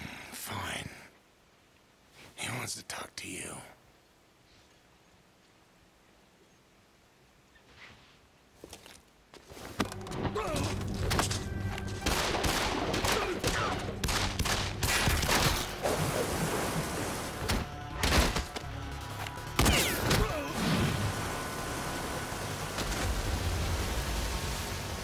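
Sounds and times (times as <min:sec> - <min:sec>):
background music: 0:09.8 - 0:25.0.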